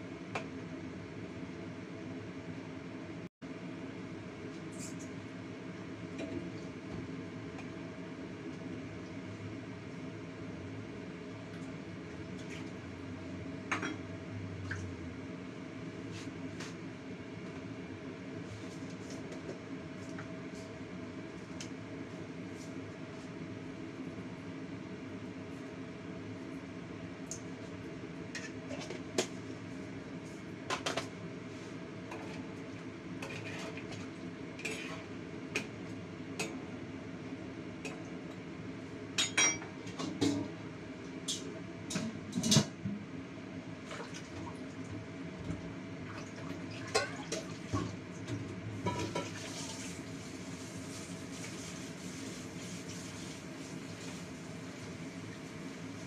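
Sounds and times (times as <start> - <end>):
metal spoon scraping a wok: 33.2 - 33.8.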